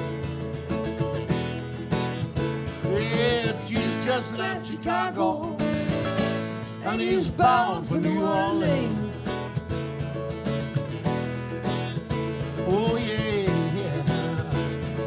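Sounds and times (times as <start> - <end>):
acoustic guitar: 0.0 - 15.0
person singing: 2.8 - 6.0, 6.8 - 9.4, 12.6 - 15.0.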